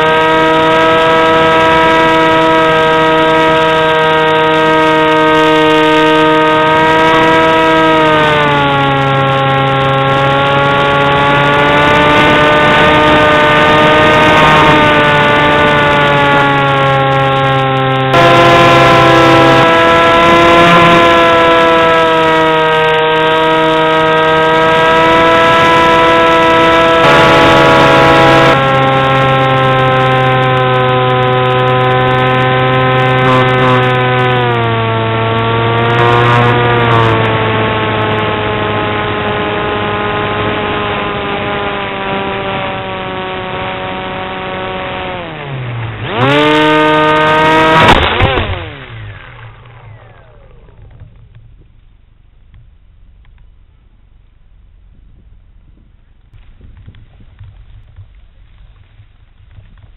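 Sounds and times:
electric motor and propeller whining: 0:00.0 - 0:52.6
plane crashing into tree: 0:45.3 - 0:51.4.

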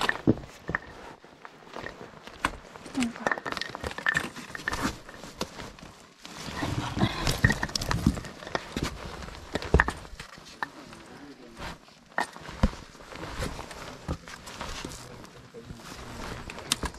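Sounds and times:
breathy voice sounds: 0:06.4 - 0:07.6.

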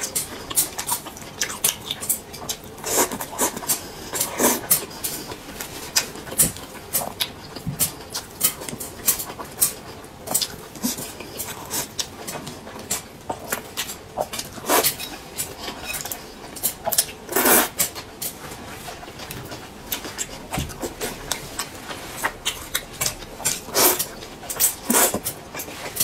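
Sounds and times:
slurping noodles: 0:02.8 - 0:05.4, 0:17.3 - 0:17.8, 0:23.5 - 0:25.3.

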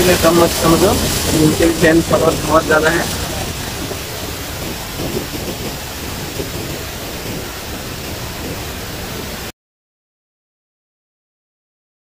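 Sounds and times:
river rushing over rapids: 0:00.0 - 0:09.5.

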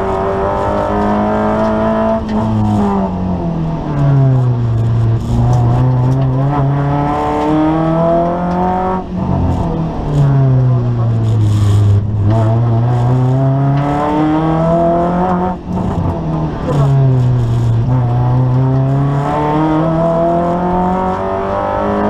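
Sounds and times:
car engine accelerating: 0:00.0 - 0:22.0.

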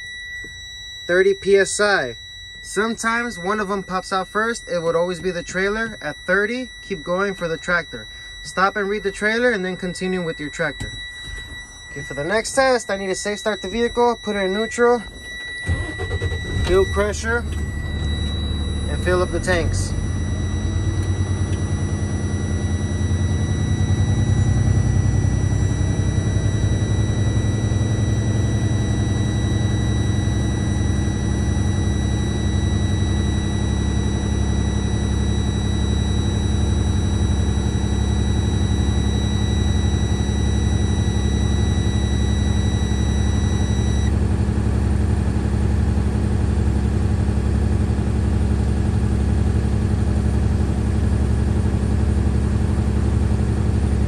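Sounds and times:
high warning buzzer beeping: 0:00.0 - 0:47.6
diesel truck engine idling: 0:11.2 - 0:54.0.

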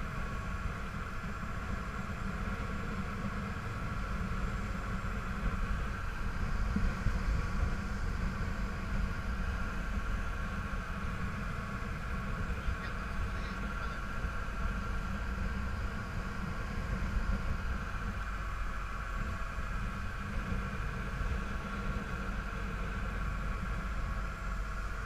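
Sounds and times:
boat engine running: 0:00.0 - 0:25.0
wake churning along hull: 0:00.0 - 0:25.0.

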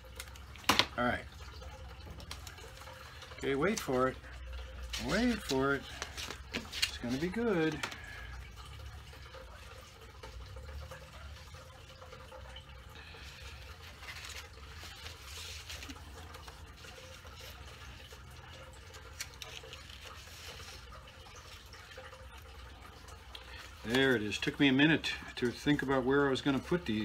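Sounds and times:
paper rustling on table: 0:04.9 - 0:07.9, 0:13.8 - 0:17.6.

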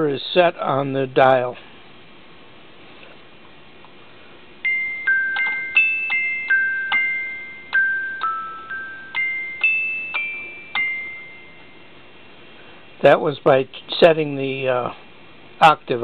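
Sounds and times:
glockenspiel tune: 0:04.6 - 0:12.0
high bell-like notes: 0:04.6 - 0:12.2.

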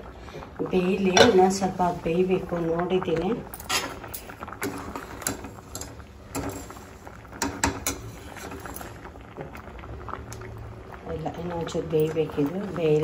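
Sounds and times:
metal utensils knocking on pot: 0:01.1 - 0:01.6.

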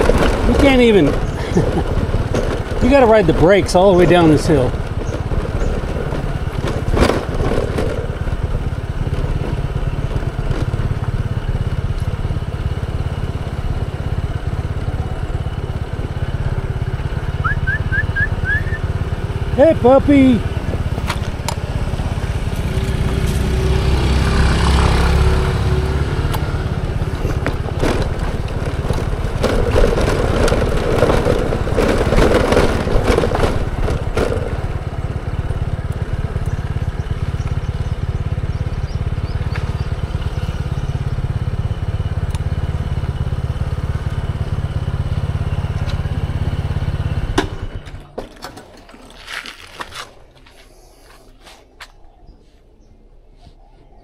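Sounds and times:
motor scooter engine rumble: 0:00.0 - 0:54.0
tyres on rough concrete: 0:44.7 - 0:52.0.

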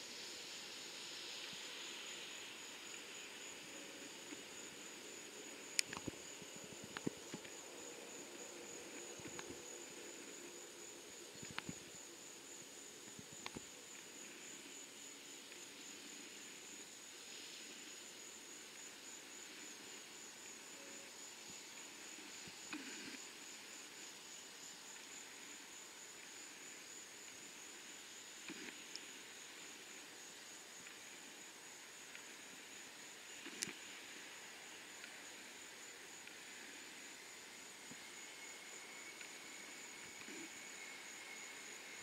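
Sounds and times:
high-pitched insect drone: 0:00.0 - 0:42.0
faint clicks: 0:05.7 - 0:06.2, 0:13.4 - 0:14.1, 0:33.4 - 0:33.8.

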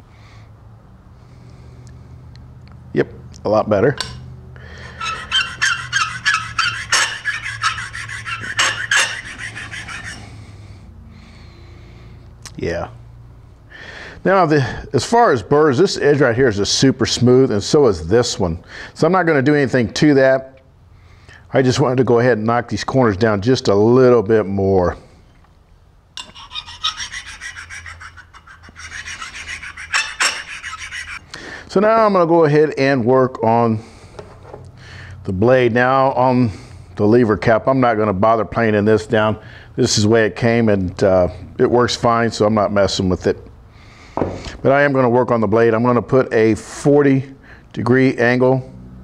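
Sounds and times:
metal rubbing on sharpening stone: 0:04.8 - 0:10.3, 0:26.2 - 0:31.3.

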